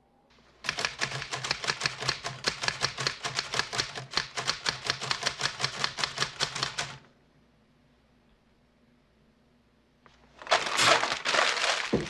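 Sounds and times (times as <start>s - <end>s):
manual typewriter keystrokes: 0.6s - 7.0s.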